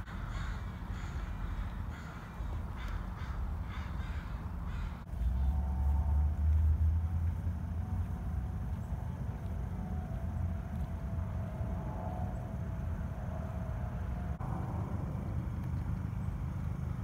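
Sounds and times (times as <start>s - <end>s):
harsh cawing bird calls: 0.0s - 5.5s
faint distant hum: 0.0s - 17.0s
low outdoor rumble: 0.0s - 17.0s.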